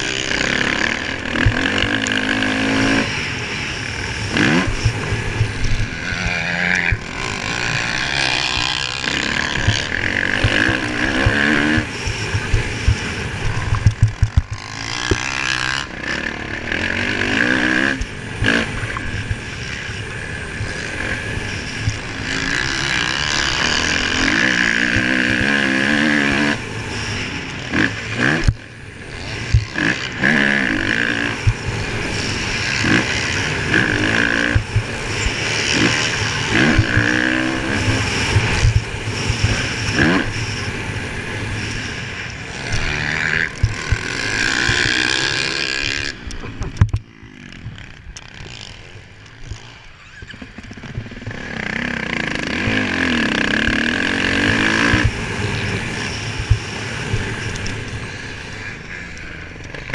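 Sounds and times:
motocross bike engine revving: 0:00.0 - 0:59.9
bike knocking on rough track: 0:04.4 - 0:15.4.

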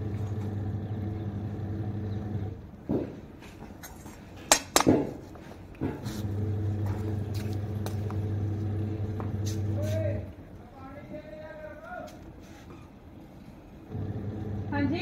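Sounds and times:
washing machine motor hum: 0:00.0 - 0:02.8, 0:05.8 - 0:10.4, 0:13.7 - 0:15.0.

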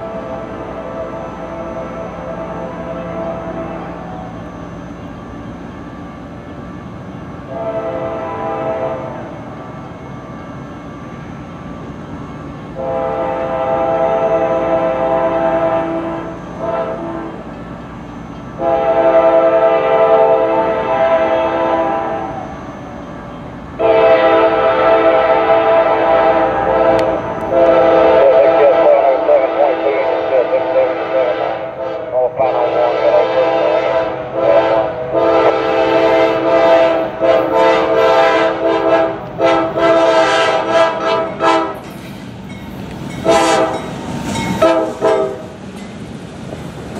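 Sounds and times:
locomotive air horn blasts: 0:00.0 - 0:04.3, 0:07.4 - 0:09.3, 0:12.7 - 0:17.5, 0:18.6 - 0:22.6, 0:23.8 - 0:41.8, 0:43.2 - 0:43.9, 0:44.6 - 0:45.6
freight train rumble: 0:00.0 - 0:46.9.

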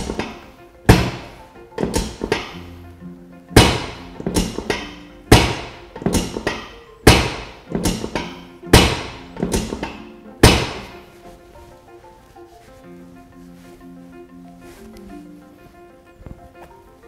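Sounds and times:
loud sharp thuds: 0:00.0 - 0:02.6, 0:03.6 - 0:11.0
music with sustained notes: 0:00.0 - 0:17.0.

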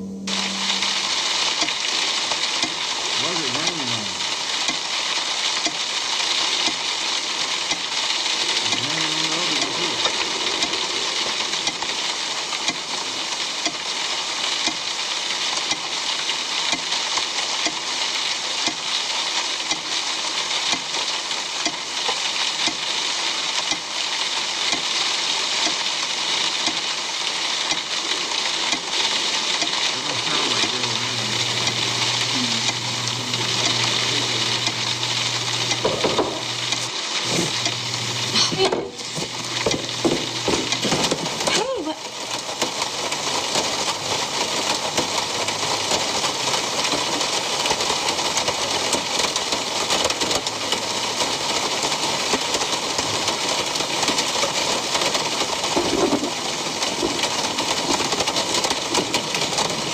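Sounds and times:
low steady hum: 0:00.0 - 0:04.4, 0:29.6 - 0:41.4
steady rain falling: 0:00.0 - 0:59.9.

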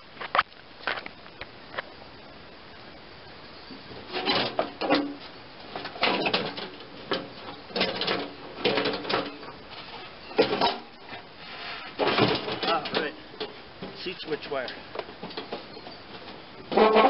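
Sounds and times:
plastic rattling and scraping: 0:03.9 - 0:17.0.

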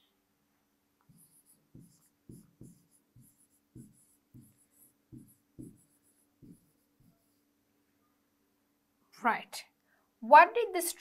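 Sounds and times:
pen tapping on a screen: 0:01.7 - 0:06.7.

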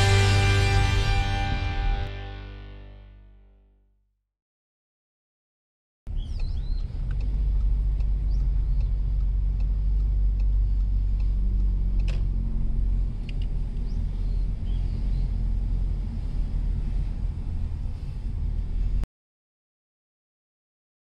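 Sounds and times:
car engine and tyres rumbling: 0:06.1 - 0:19.0.

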